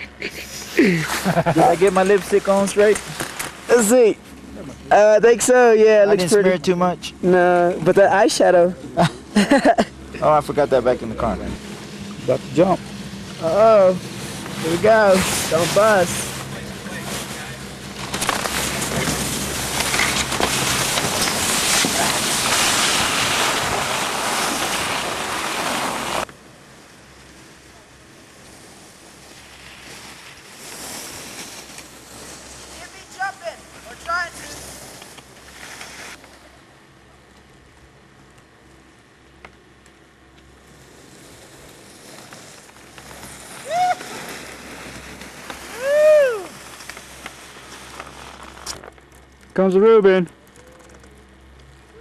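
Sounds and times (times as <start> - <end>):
faint outdoor hiss: 0.0 - 52.0
skis sliding on snow: 0.3 - 4.2, 10.7 - 36.5, 40.5 - 48.8
person whooping: 43.6 - 44.2, 45.6 - 46.6.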